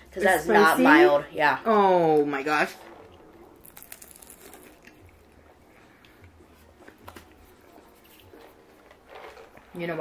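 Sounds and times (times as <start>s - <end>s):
faint chewing: 2.9s - 9.8s.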